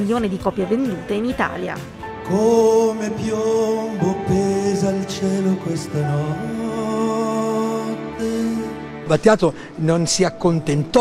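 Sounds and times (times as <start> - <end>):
orchestral strings: 1.8 - 11.0
man singing long note: 2.2 - 9.1.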